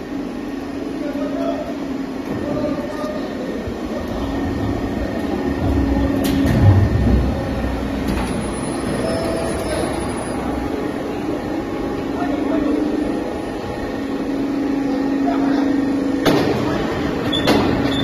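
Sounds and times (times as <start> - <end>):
machine mechanical hum: 0.0 - 18.0
deep rumble: 4.1 - 8.2.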